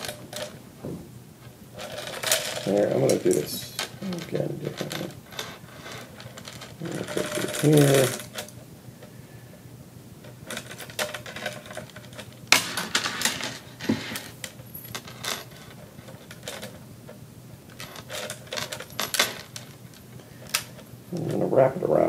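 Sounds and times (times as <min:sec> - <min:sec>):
metal chain clinking and rattling: 0:01.8 - 0:08.5, 0:10.5 - 0:16.8, 0:17.7 - 0:19.9.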